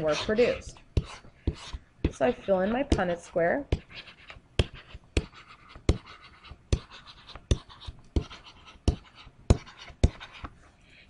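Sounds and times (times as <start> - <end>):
pen scratching on tablet: 0.0 - 10.6.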